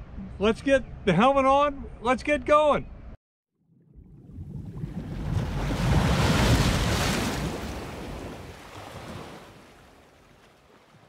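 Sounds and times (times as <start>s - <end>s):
wind buffeting microphone: 4.0s - 11.0s
surf rushing: 4.3s - 10.0s.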